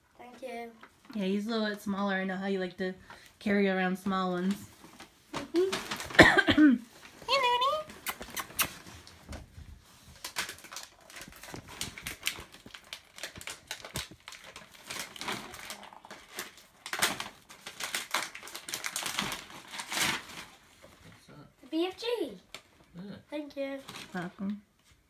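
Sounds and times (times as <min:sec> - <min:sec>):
wrapping paper tearing and crinkling: 0:04.4 - 0:06.3, 0:10.0 - 0:20.8, 0:23.7 - 0:24.3.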